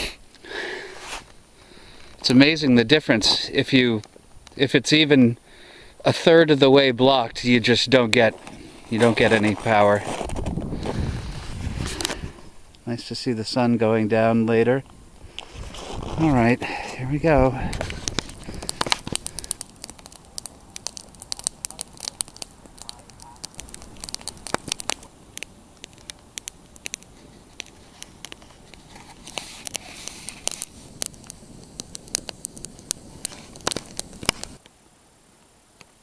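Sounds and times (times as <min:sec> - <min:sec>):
snowshoes crunching on snow: 0:00.9 - 0:01.4, 0:08.2 - 0:12.3, 0:15.4 - 0:16.9.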